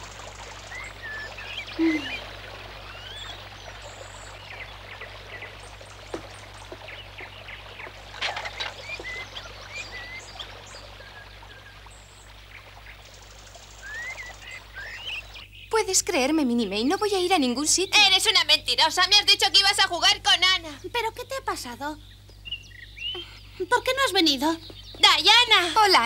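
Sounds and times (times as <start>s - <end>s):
flowing stream: 0.0s - 15.4s
small birds chirping: 0.0s - 26.0s.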